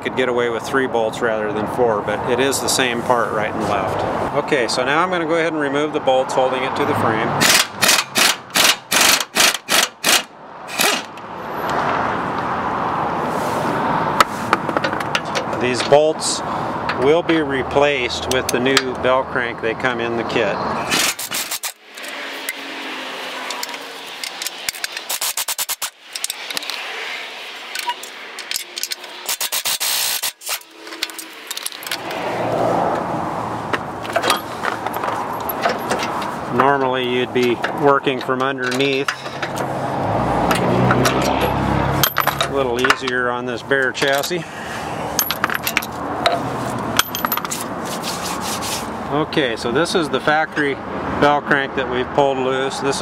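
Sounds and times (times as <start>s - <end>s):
air impact wrench: 7.4s - 11.2s, 20.8s - 22.7s, 23.5s - 26.8s, 27.8s - 31.7s
impact wrench hammering: 7.4s - 11.2s
metal part clattering and scraping: 23.4s - 26.9s, 27.7s - 32.2s, 34.0s - 39.7s, 40.5s - 43.2s, 45.1s - 48.6s.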